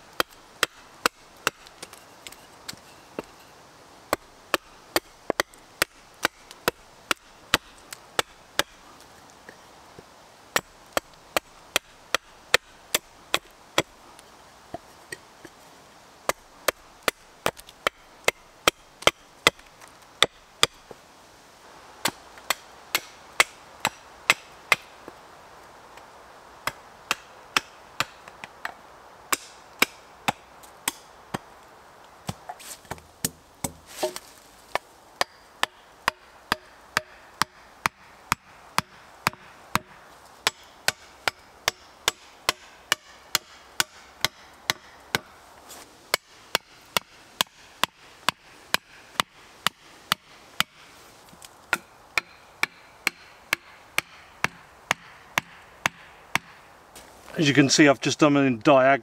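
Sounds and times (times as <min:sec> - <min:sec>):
hatchet chopping wood: 0:00.1 - 0:03.3, 0:04.1 - 0:08.8, 0:10.5 - 0:13.9, 0:16.3 - 0:20.8, 0:22.0 - 0:24.9, 0:26.6 - 0:31.5, 0:32.2 - 0:45.3, 0:46.1 - 0:56.6.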